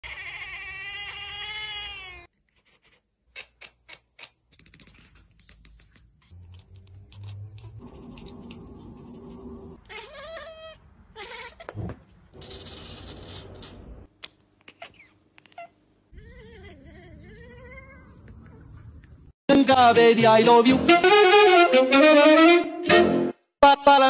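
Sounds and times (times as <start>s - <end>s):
cat meowing: 0.0s - 4.3s, 9.8s - 11.8s, 14.7s - 18.2s
cat yowling: 0.0s - 4.4s, 9.8s - 11.8s, 14.7s - 18.2s.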